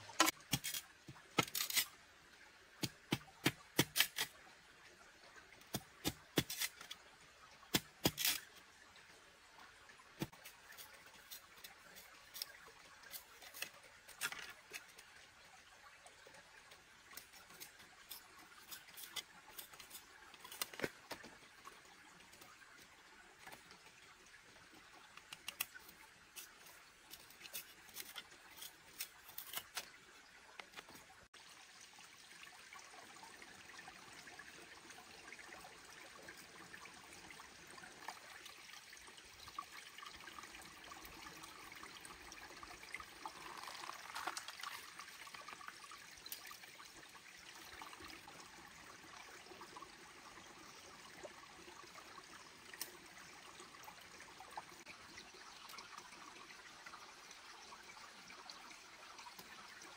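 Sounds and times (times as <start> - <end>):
stream water trickling: 0.0 - 59.9
cleaver splitting bamboo: 1.4 - 1.9, 2.8 - 4.3, 7.7 - 8.5.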